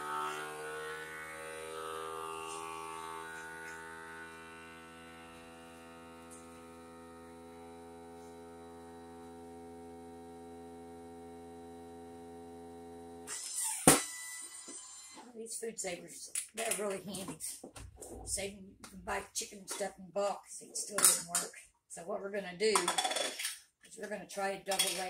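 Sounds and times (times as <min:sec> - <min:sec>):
vacuum sealer pump humming: 0:00.0 - 0:14.2.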